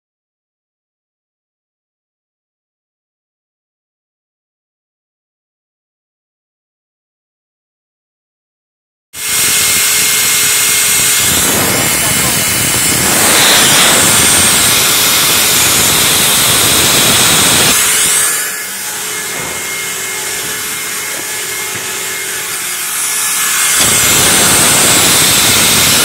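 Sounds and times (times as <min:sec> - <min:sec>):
air compressor running: 0:09.2 - 0:26.0.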